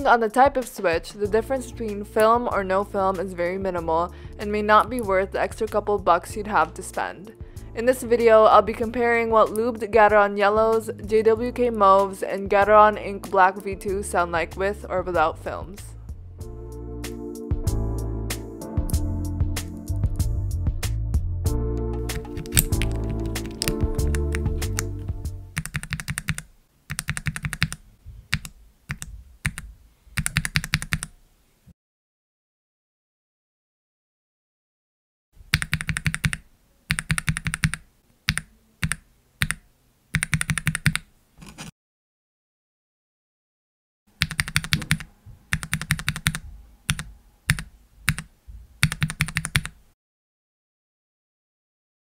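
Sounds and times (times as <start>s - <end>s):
typing on mechanical keyboard: 22.1s - 24.9s, 25.5s - 31.1s, 35.5s - 39.6s, 40.2s - 41.1s, 44.2s - 49.8s.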